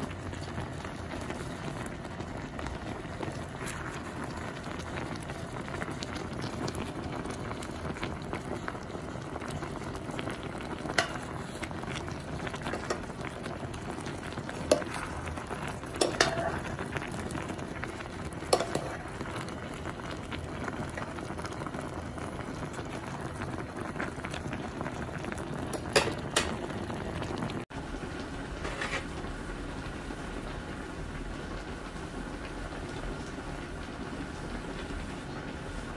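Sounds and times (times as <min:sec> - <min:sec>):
soup boiling in pot: 0:00.0 - 0:35.9
metal ladle clinking on pot: 0:16.0 - 0:16.6, 0:18.6 - 0:19.0.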